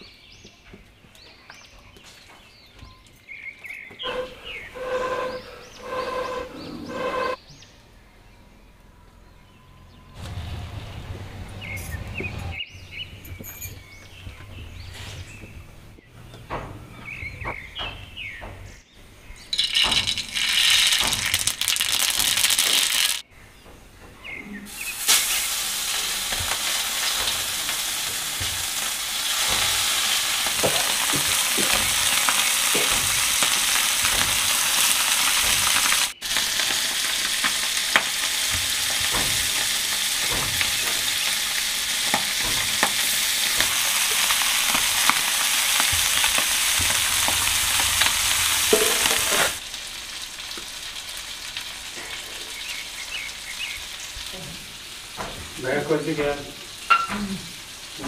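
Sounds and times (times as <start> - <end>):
fish sizzling in oil: 19.6 - 23.2, 24.7 - 58.0.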